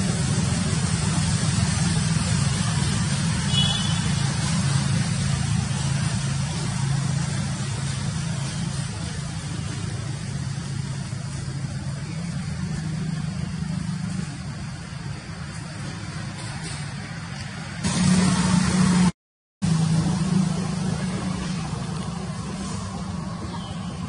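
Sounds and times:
constant hiss: 0.0s - 19.1s
low mechanical hum: 19.7s - 24.0s.

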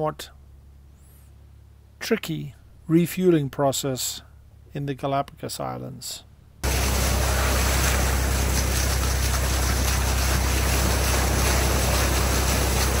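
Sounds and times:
deep rumble: 6.6s - 13.0s
water rushing along hull: 6.6s - 13.0s.

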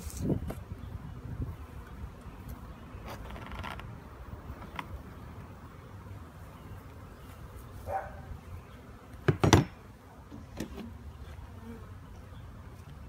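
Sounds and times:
wooden beehive boxes knocking: 9.2s - 9.8s.

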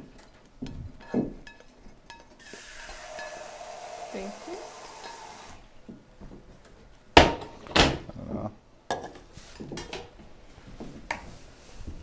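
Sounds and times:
kitchen tap running into sink: 2.4s - 5.6s.

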